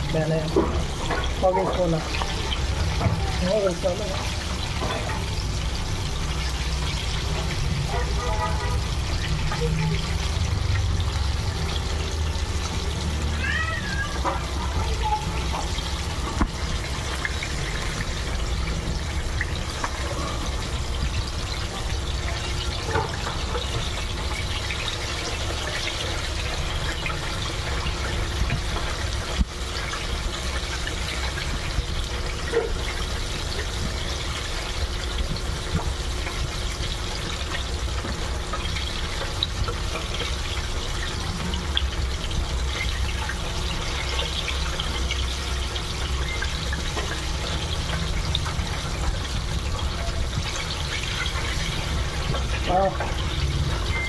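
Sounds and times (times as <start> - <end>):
oil bubbling and sizzling: 0.0 - 54.0.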